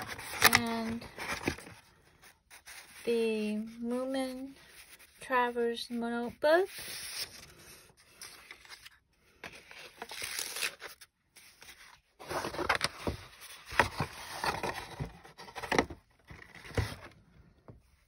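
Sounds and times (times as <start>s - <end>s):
paper envelope rustling: 0.0s - 3.8s, 6.7s - 17.1s.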